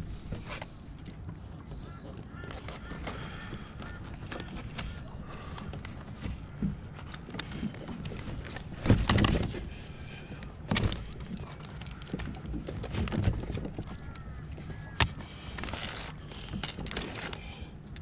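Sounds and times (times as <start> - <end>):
knocks and thumps on kayak: 2.3 - 15.2.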